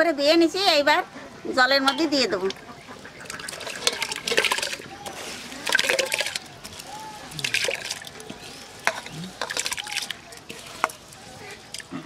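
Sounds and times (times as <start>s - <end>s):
rice splashing into water: 3.2s - 11.9s.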